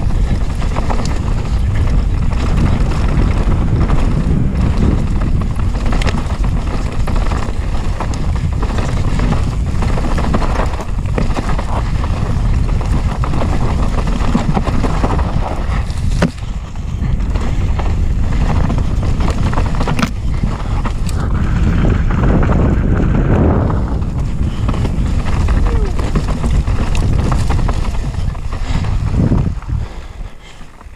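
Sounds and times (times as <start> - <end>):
bike clattering on rough trail: 0.0 - 30.9
wind noise on microphone: 0.0 - 30.9.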